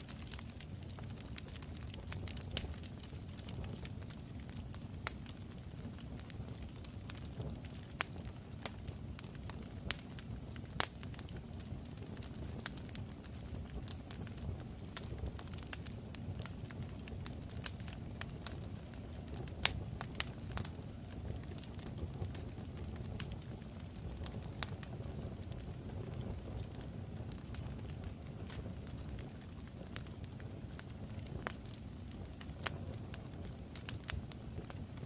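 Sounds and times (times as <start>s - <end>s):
fire crackling: 0.0s - 35.0s.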